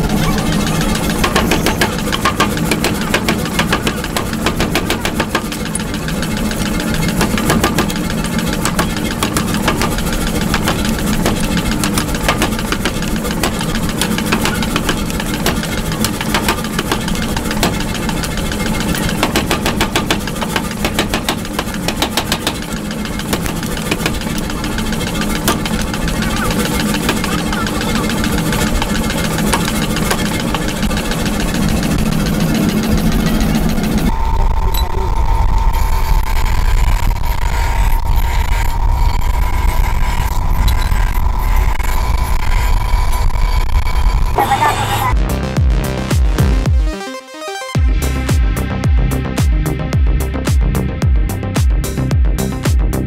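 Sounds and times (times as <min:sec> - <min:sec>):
power hammer striking steel: 0:00.0 - 0:34.1
machine drone: 0:00.0 - 0:46.9, 0:47.7 - 0:53.0.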